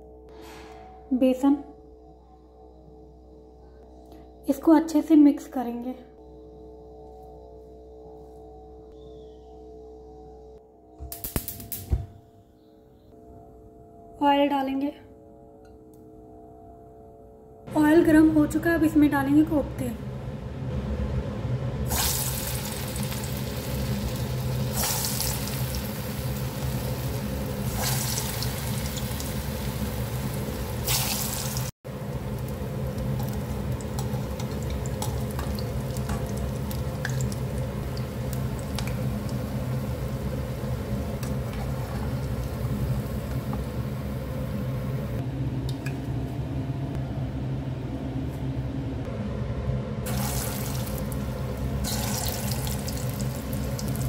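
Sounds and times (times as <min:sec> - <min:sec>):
food sizzling in hot oil: 0:21.9 - 0:44.3, 0:50.1 - 0:54.0.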